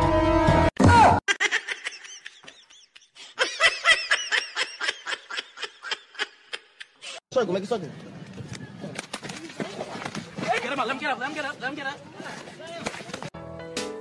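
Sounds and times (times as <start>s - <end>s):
high-pitched giggling laughs: 1.3s - 7.0s.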